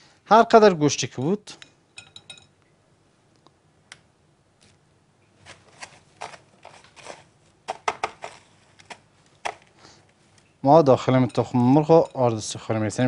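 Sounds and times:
crunchy rustling of breadcrumbs: 5.4 - 9.8.

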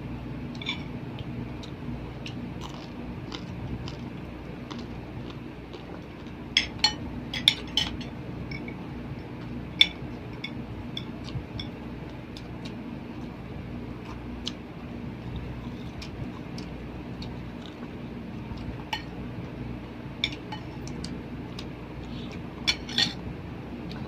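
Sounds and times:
steady low hum: 0.0 - 24.0
cutlery clinking on plates: 6.6 - 8.8.

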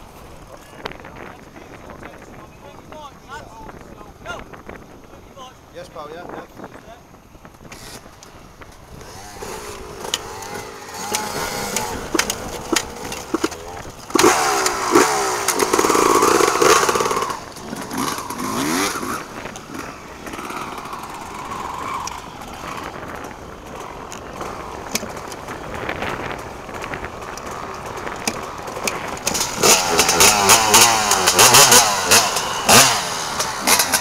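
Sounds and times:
motocross bike engines revving: 7.5 - 34.0.

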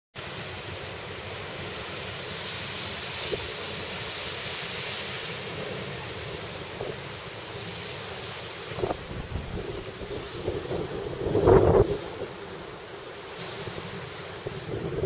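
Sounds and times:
ocean surf breaking: 0.2 - 15.0
wind on microphone: 8.6 - 15.0.

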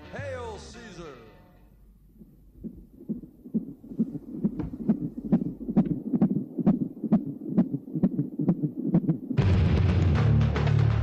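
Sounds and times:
fetal heartbeat on doppler monitor: 2.0 - 9.4.

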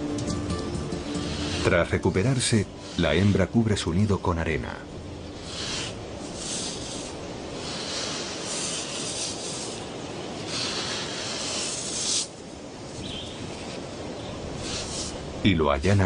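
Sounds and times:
sand scraping sweeps: 1.0 - 3.4, 5.4 - 15.2.

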